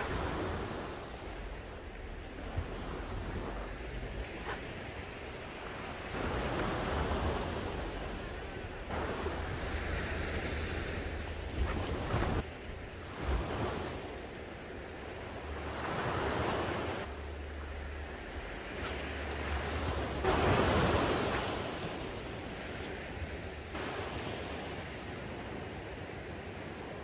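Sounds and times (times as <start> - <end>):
surf breaking on beach: 0.0 - 14.3, 18.6 - 25.5
wind rumbling on microphone: 0.0 - 27.0.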